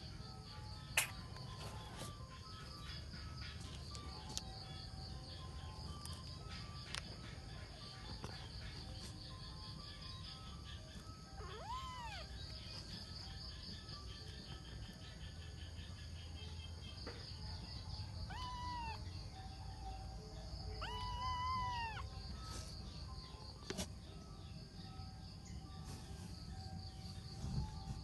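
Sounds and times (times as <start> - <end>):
kitten mewing: 11.4 - 12.3, 18.3 - 19.0, 20.8 - 22.1.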